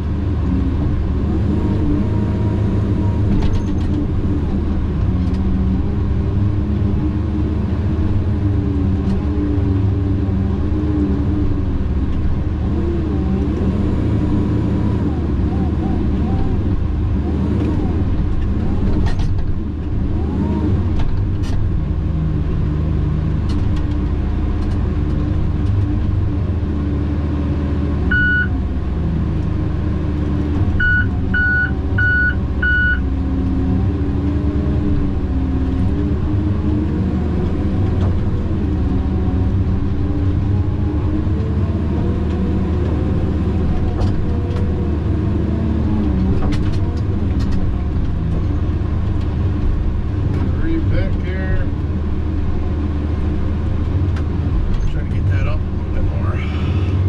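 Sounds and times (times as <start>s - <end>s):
diesel engine running: 0.0s - 57.0s
electronic warning beeper: 28.1s - 28.5s, 30.8s - 33.0s.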